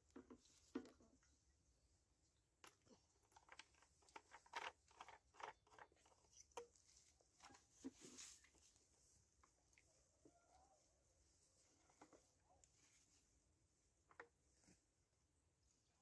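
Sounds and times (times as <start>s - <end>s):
plastic clicks and scrapes: 2.6s - 6.7s.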